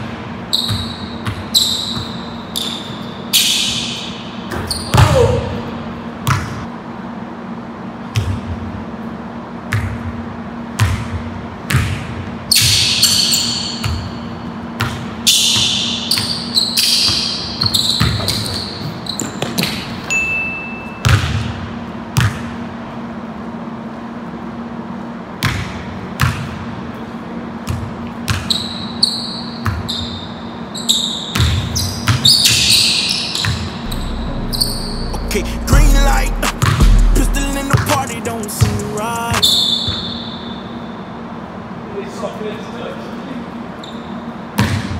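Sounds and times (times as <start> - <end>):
sneaker squeaks: 0.0 - 6.7, 11.7 - 21.6, 27.7 - 33.9, 38.6 - 41.2, 43.6 - 44.9
steady low hum: 33.8 - 39.4
basketball bouncing on hardwood floor: 36.6 - 36.9.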